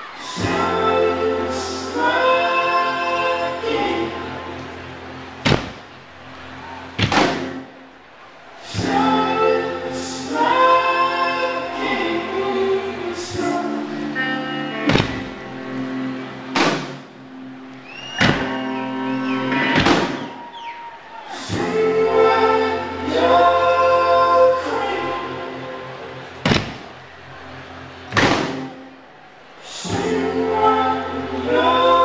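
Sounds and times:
layered singing: 0.0 - 32.0
guitar chords: 8.8 - 20.5
heavy drum strikes: 14.9 - 15.4.

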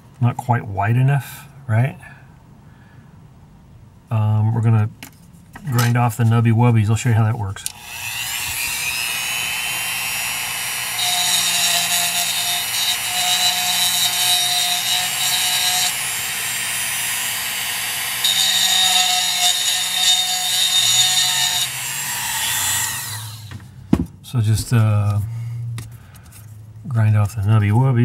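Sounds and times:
rotary tool grinding: 7.7 - 23.5.

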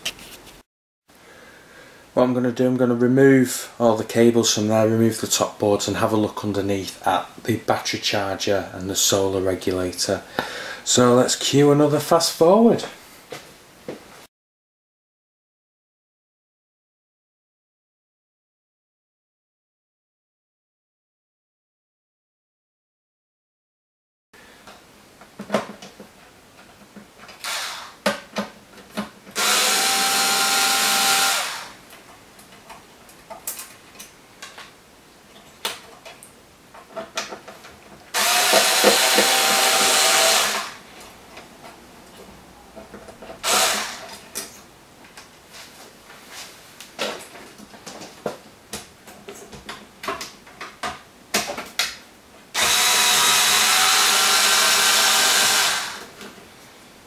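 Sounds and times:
parts and cables clicking and knocking: 24.6 - 29.4, 31.9 - 40.0, 41.0 - 45.3, 46.8 - 52.7
electric screwdriver whirring: 27.4 - 28.0, 29.4 - 31.8, 38.2 - 40.8, 43.4 - 44.0, 52.6 - 56.1.

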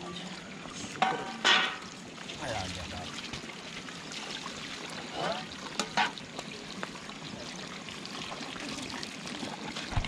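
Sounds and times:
water splashing over plates: 0.9 - 10.0.

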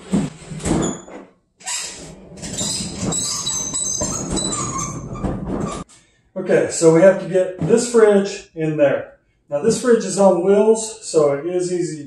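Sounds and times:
refrigerator wheels scraping on tile: 0.0 - 5.9
wheels squeaking: 1.6 - 5.9.

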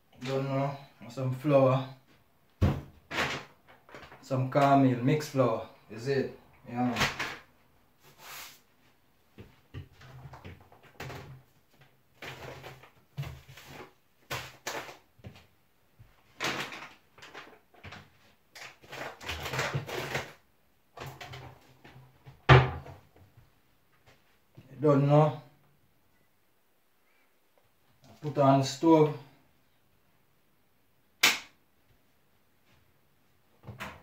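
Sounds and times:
cupboard knocks and clatters: 2.6 - 3.4, 22.3 - 23.0.

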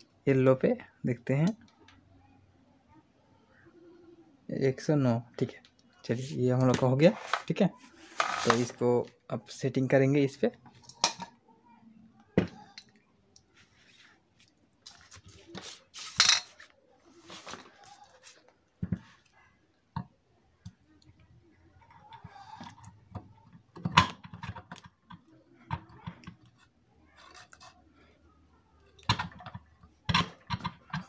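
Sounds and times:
metal parts clattering and scraping: 8.1 - 8.8, 16.0 - 16.6.

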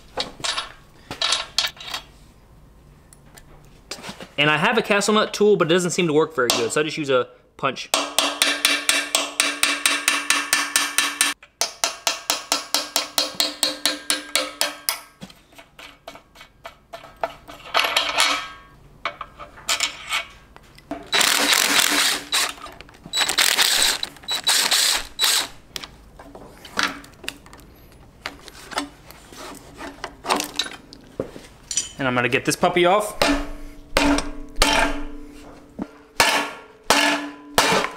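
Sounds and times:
hammer tapping metal punch: 7.9 - 15.2.

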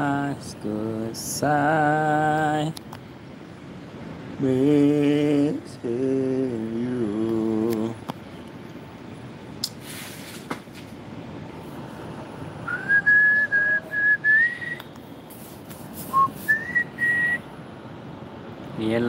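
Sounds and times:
person whistling a tune: 12.7 - 14.8, 16.1 - 17.4.

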